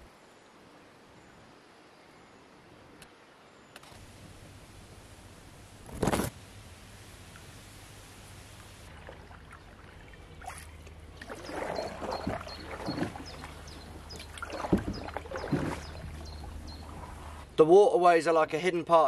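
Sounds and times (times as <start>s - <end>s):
paddle splashing through water: 8.9s - 17.4s.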